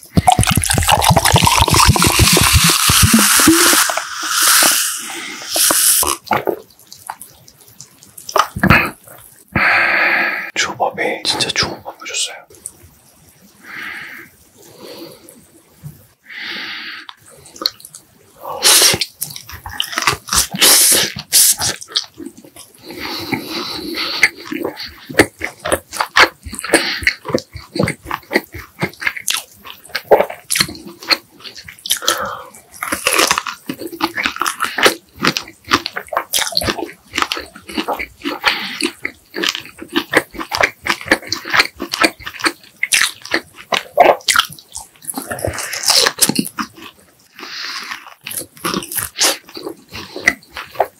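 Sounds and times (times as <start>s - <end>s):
wet mouth clicks and smacks: 0.0s - 9.4s, 17.1s - 22.7s, 24.0s - 47.0s
person chewing food: 0.0s - 9.8s, 17.1s - 50.9s.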